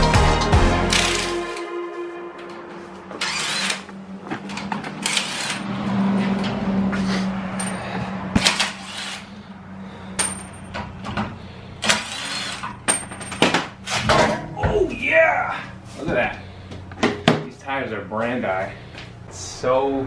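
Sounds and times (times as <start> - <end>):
clatter of parts and tools: 7.6 - 9.2, 10.0 - 14.4
steady low hum: 13.7 - 20.0.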